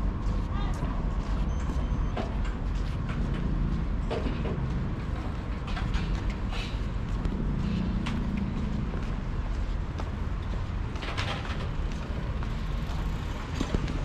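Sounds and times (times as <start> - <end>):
low rumble of vehicles: 0.0 - 14.0
high beep: 1.4 - 2.2.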